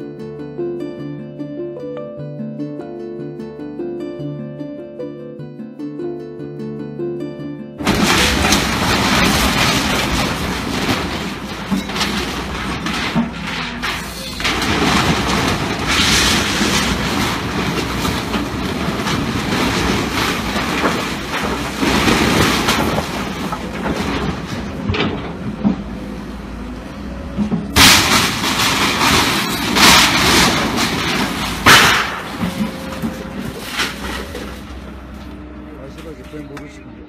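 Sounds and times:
crashes of timber and debris: 7.8 - 26.1, 27.4 - 36.5
heavy machine running: 7.8 - 37.0.

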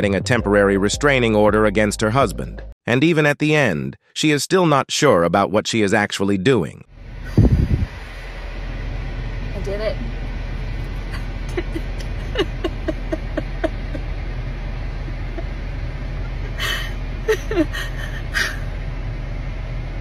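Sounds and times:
low cabin hum: 7.0 - 20.0
woman sobbing: 11.0 - 14.1, 16.2 - 18.7.

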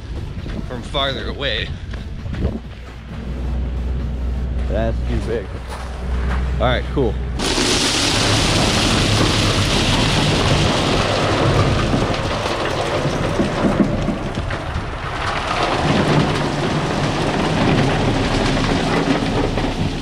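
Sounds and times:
loader engine running: 0.0 - 20.0
rocks clattering into trailer: 7.4 - 20.0.

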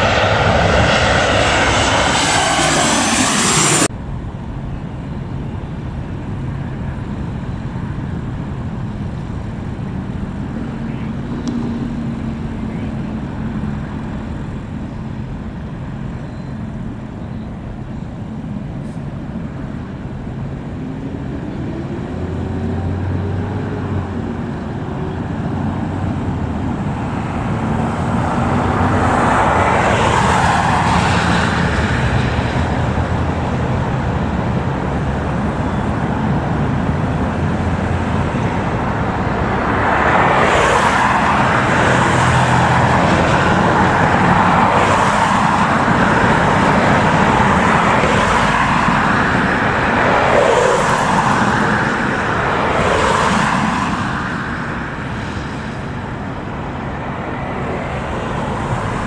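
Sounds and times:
vehicle passing loudly: 0.0 - 3.9, 20.8 - 59.0
road traffic rumble: 0.0 - 59.0.

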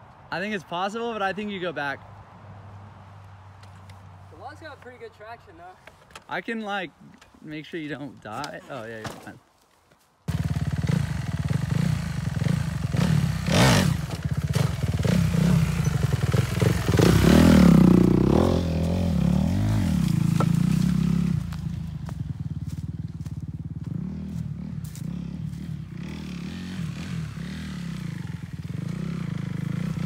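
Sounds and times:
dirt bike engine revving: 10.3 - 30.0.

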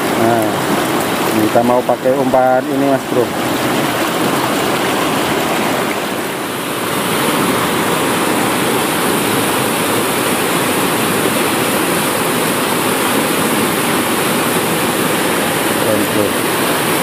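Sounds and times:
water rushing over boulders: 0.0 - 17.0.

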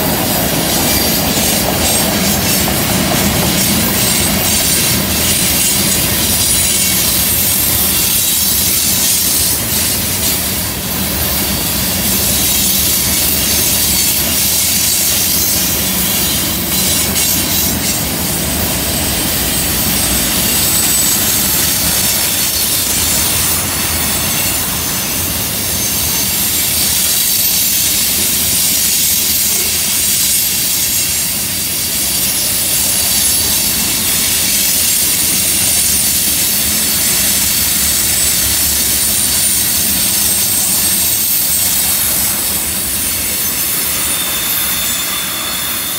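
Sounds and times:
freight train rolling past: 0.0 - 45.9
steel wheels rumbling on rail: 0.0 - 45.9
wheels squealing on curve: 11.3 - 28.0, 29.0 - 45.9.

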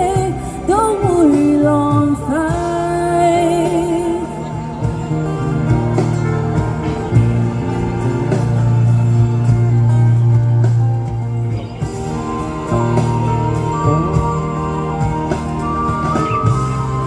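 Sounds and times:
pop ballad backing track: 0.0 - 17.0.

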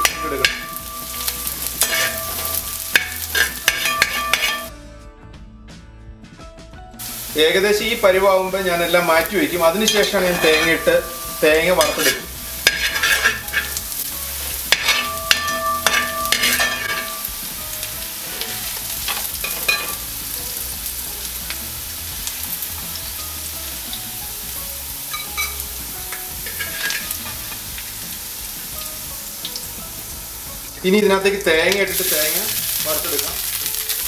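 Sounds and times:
food sizzling in oil: 0.0 - 4.7, 7.0 - 34.0
metal spoon scraping a pan: 0.0 - 4.7, 8.9 - 20.1, 25.1 - 27.7.

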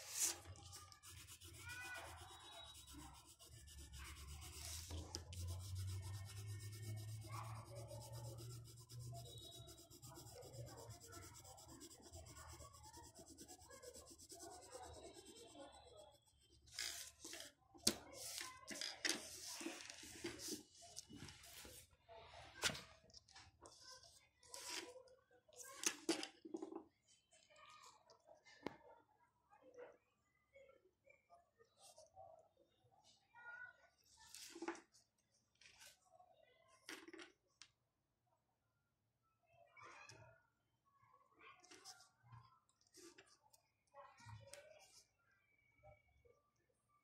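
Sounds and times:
pencil scratching on paper: 0.0 - 17.1.

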